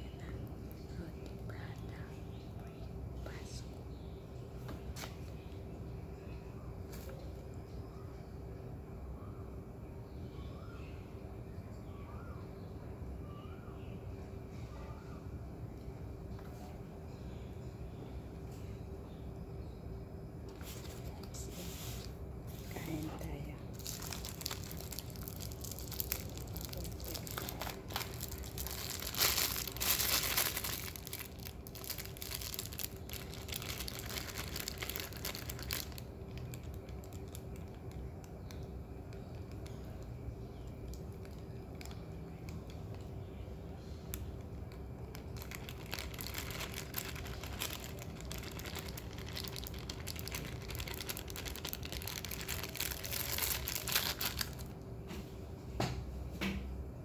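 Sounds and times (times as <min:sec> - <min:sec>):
faint steady hum: 0:00.0 - 0:57.0
plastic bag crinkling: 0:22.0 - 0:40.0, 0:40.6 - 0:43.0, 0:44.1 - 0:54.8.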